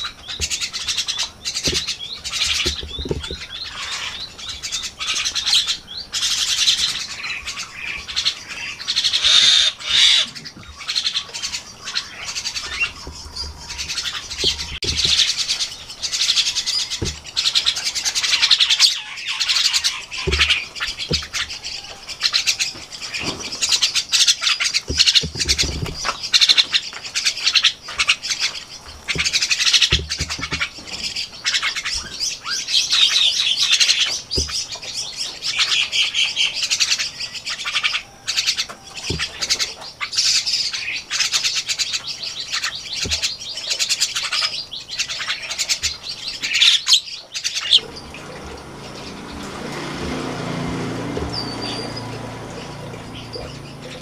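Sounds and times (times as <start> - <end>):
birds chirping and squawking: 0.0 - 54.0
low thumps: 1.6 - 3.7, 12.4 - 17.8, 19.9 - 21.8, 47.8 - 54.0.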